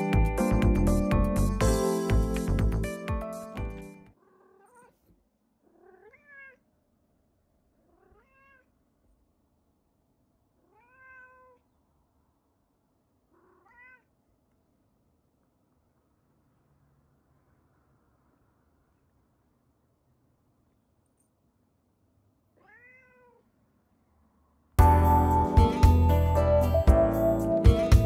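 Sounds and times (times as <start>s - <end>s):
background music: 0.0s - 4.1s, 24.8s - 28.0s
cat meowing: 4.2s - 6.7s, 7.8s - 8.8s, 10.6s - 11.7s, 13.3s - 14.1s, 22.5s - 23.5s.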